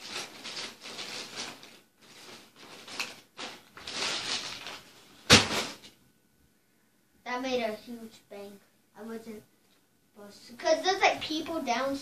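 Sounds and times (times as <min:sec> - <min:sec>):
plastic parts rustling: 0:00.0 - 0:05.9
sharp bang: 0:05.3 - 0:05.8.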